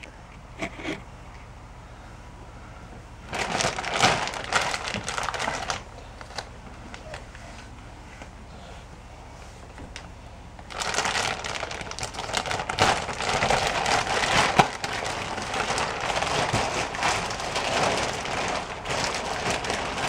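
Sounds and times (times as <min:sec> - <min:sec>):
plastic wrapping crinkling: 0:03.3 - 0:07.7, 0:09.9 - 0:20.0.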